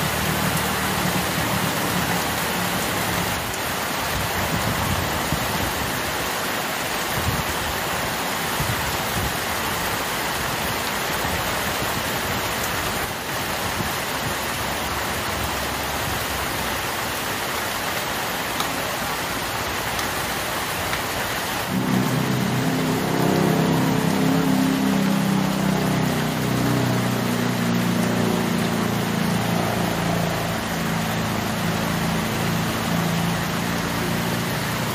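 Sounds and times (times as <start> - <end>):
heavy rain on leaves: 0.0 - 34.9
truck engine hum: 21.7 - 34.9.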